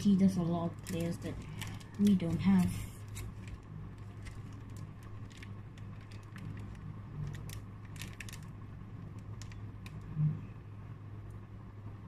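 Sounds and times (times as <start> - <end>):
steady low hum: 0.0 - 12.0
plastic pages crinkling: 0.4 - 10.0.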